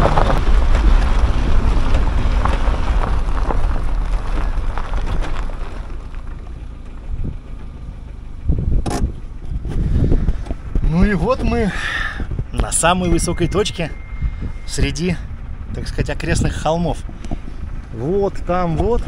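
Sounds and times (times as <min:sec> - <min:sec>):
tyres crunching on stones: 0:00.0 - 0:07.0
car engine rumble under load: 0:00.0 - 0:19.0.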